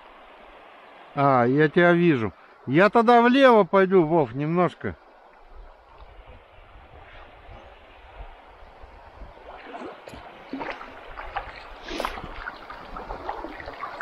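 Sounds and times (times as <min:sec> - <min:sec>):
river water rushing: 0:00.0 - 0:14.0
paddle strokes splashing: 0:09.2 - 0:14.0.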